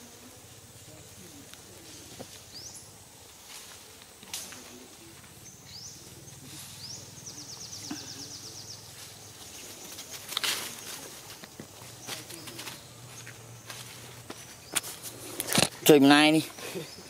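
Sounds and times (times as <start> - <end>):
loud rustle: 8.9 - 15.9.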